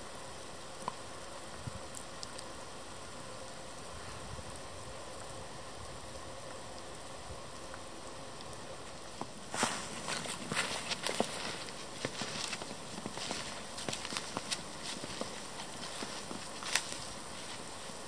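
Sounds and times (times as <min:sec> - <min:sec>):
faint ticks: 0:00.8 - 0:02.5
hiss of falling snow: 0:03.7 - 0:18.0
footsteps in snow: 0:09.5 - 0:18.0.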